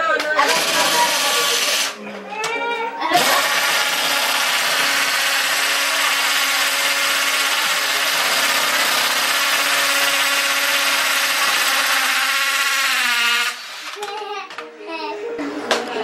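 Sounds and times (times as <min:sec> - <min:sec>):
cordless drill running under load: 0:00.4 - 0:02.0, 0:03.2 - 0:14.0.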